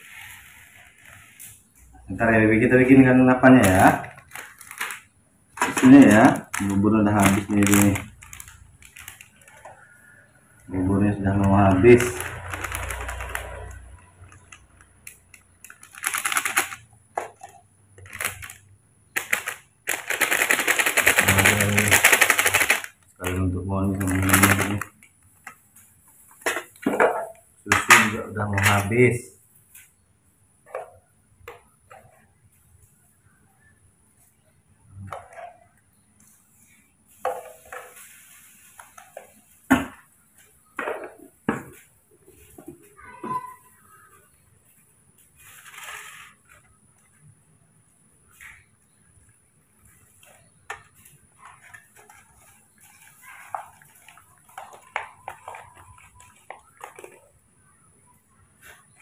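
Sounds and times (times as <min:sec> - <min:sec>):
foil sachet crinkling: 0:02.3 - 0:26.8, 0:45.2 - 0:47.2, 0:49.8 - 0:57.5.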